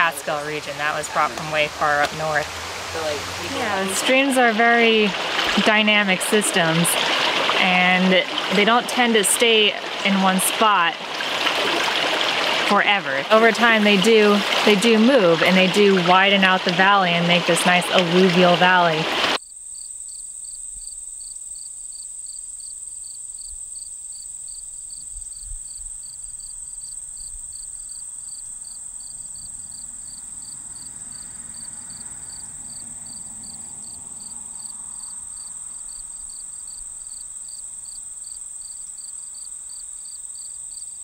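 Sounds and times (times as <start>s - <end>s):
crickets high-pitched trill: 19.4s - 41.0s
insect chirping in regular pulse: 19.4s - 41.0s.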